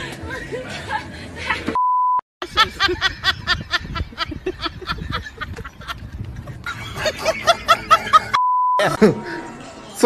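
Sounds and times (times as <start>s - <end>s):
people laughing: 2.4s - 8.4s.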